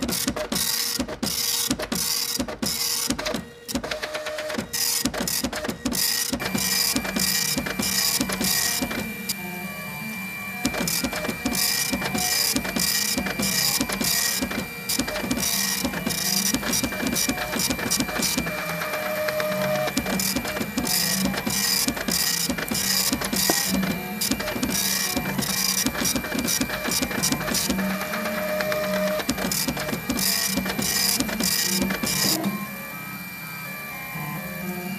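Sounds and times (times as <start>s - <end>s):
printer small clicks: 0.0s - 9.4s, 10.4s - 32.6s
printer high whine: 0.0s - 34.9s
printer rasping print pass: 0.0s - 34.9s.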